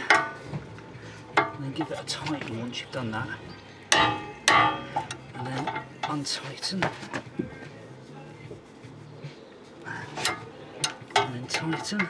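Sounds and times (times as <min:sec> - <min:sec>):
spanner clanking on metal bolt: 0:00.0 - 0:00.4, 0:03.9 - 0:06.2, 0:10.2 - 0:12.0.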